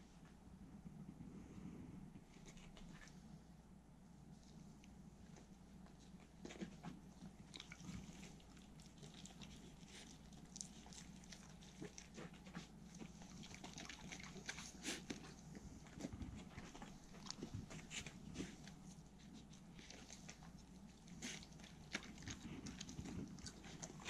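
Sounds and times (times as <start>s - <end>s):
dogs licking and chewing: 5.2s - 24.0s.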